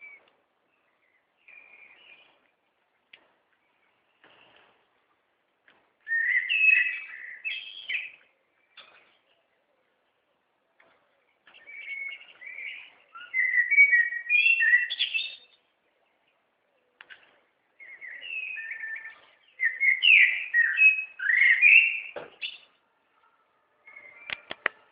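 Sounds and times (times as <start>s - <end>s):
songbird warbling: 6.1s - 8.3s.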